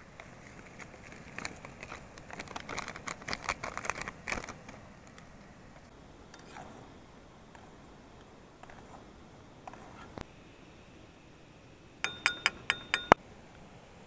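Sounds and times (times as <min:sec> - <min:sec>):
plastic packet crinkling: 0:00.0 - 0:05.2.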